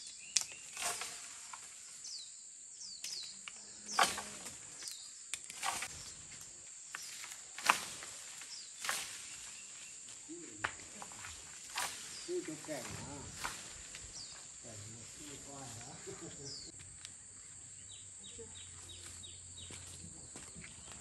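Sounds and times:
high insect hiss: 0.0 - 21.0
leaves rustling: 0.0 - 21.0
pole knocking tree branches: 0.4 - 1.8, 3.0 - 14.4.

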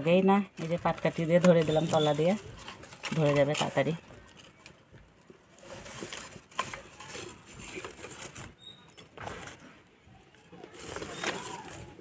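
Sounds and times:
sticks rustling: 5.5 - 8.6.

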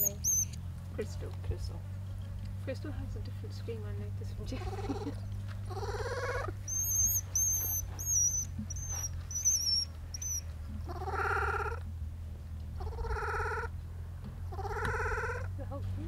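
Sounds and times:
baby monkeys screaming: 0.0 - 0.6, 4.6 - 11.8, 12.8 - 13.7, 14.5 - 15.5.

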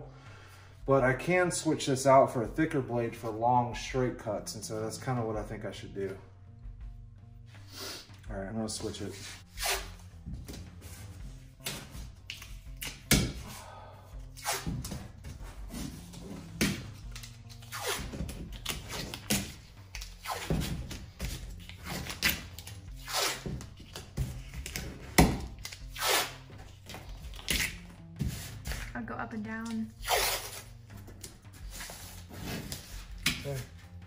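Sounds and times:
background music: 0.0 - 34.0
tape ripping off roll: 9.5 - 10.6, 14.4 - 15.1, 15.7 - 28.9, 30.0 - 30.7.

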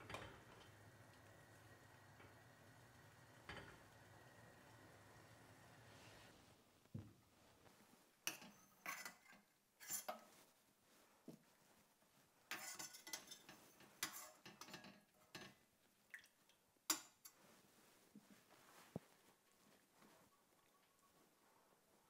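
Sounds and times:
metal spoon clinking on steel pot: 12.5 - 15.5.

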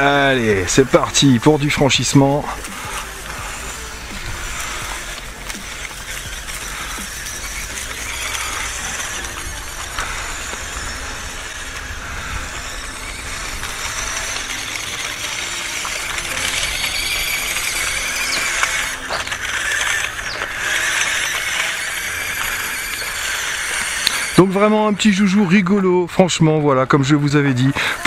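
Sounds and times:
toy truck electric motor whining: 0.0 - 28.0.

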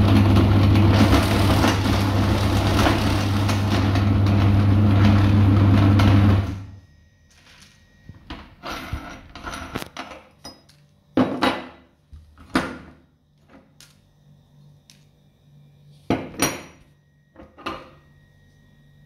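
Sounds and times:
gumballs clattering in metal grinder: 0.0 - 6.4.

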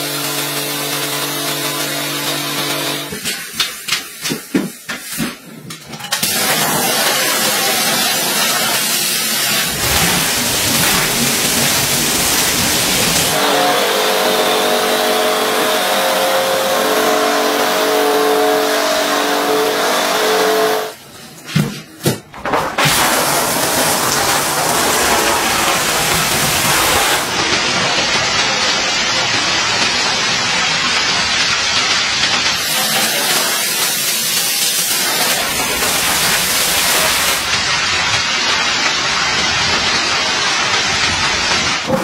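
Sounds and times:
pressure washer spray hiss: 6.2 - 14.2, 22.8 - 41.8
wet vacuum drawing water: 6.2 - 20.9, 22.7 - 30.2, 32.2 - 37.7
machinery hum: 9.1 - 19.5.

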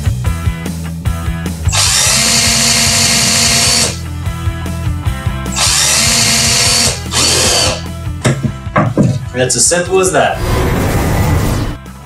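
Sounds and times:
background music: 0.0 - 12.0
cordless drill motor whine: 1.7 - 4.0, 5.5 - 7.8.

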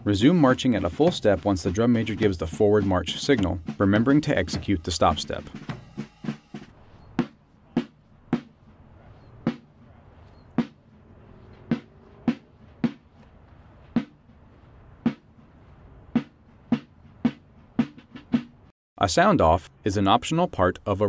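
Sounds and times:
sharp drum strikes: 0.5 - 8.6, 11.6 - 13.0, 14.0 - 14.2, 16.2 - 18.6.

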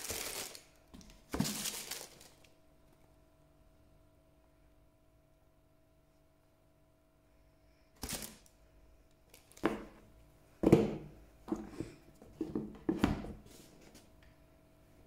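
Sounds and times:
tissue paper rustling: 0.0 - 0.7, 1.3 - 2.5, 8.0 - 8.5.

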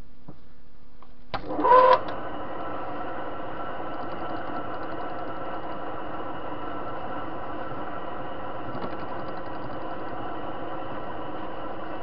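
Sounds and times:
lathe motor whining and running: 1.5 - 12.0.

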